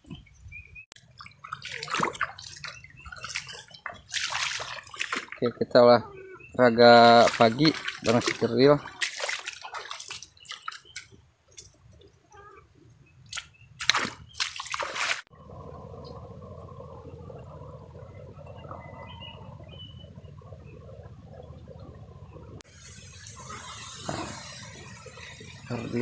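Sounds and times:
footsteps splashing on wet path: 1.2s - 5.5s, 6.9s - 11.8s, 13.3s - 15.3s.

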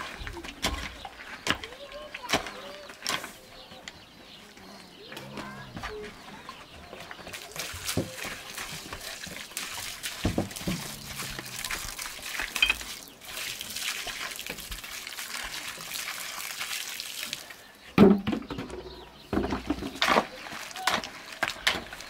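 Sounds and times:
water trickling: 7.3s - 17.8s.

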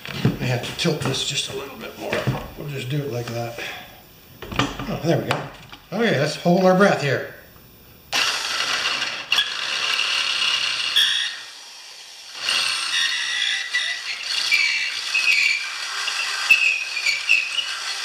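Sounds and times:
electric drill boring: 8.1s - 18.0s.

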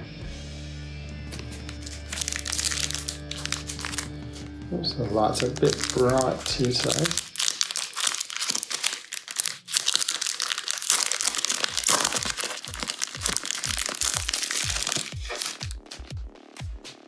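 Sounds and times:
background music with kick drum: 0.0s - 7.6s, 11.7s - 17.0s
foil wrapper crinkling and tearing: 1.3s - 16.1s.

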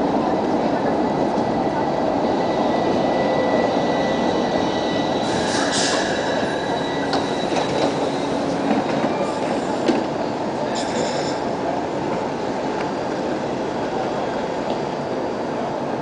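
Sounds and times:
tram wheels rumbling on rails: 0.0s - 16.0s
high-pitched wheel squeal: 2.3s - 9.6s.

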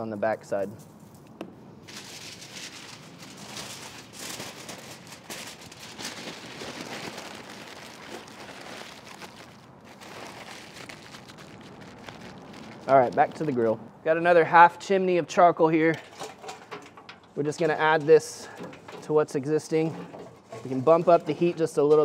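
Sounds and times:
aluminium foil crinkling: 1.9s - 13.8s.

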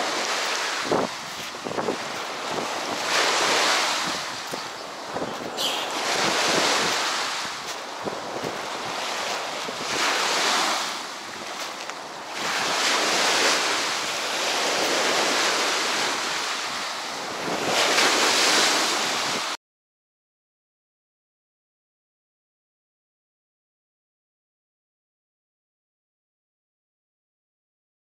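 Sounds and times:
waves washing onto pebbly beach: 0.0s - 19.6s.

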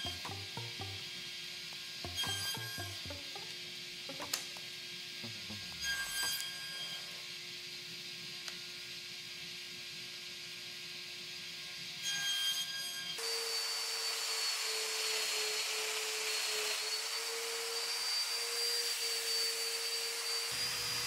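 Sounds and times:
faint hum: 0.0s - 9.0s
power tool motor whirring: 13.2s - 21.0s.

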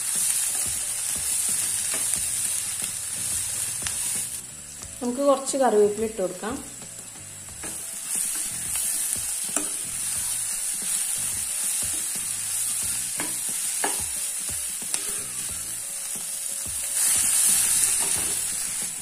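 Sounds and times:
onions sizzling in hot oil: 0.0s - 19.0s
steel spoon scraping a pan: 1.8s - 2.6s, 7.6s - 15.7s, 16.8s - 19.0s.

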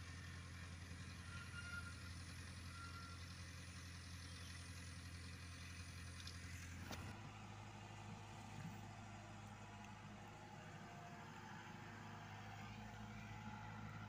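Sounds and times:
diesel engine humming: 0.0s - 14.0s.

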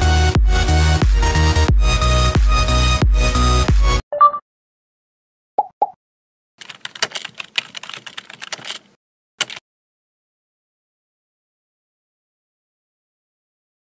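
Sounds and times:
short beeps: 4.1s - 4.4s
computer keyboard key clicks: 6.6s - 9.6s.

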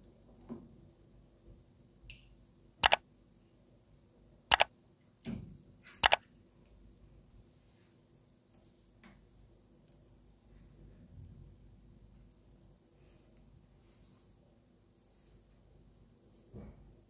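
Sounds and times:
mouse double clicks: 6.0s - 6.2s.

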